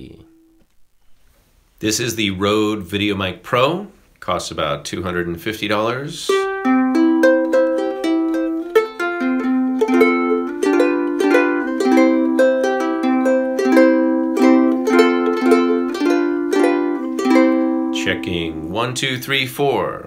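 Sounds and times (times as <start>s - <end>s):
ukulele plucked notes and chords: 6.3s - 19.2s.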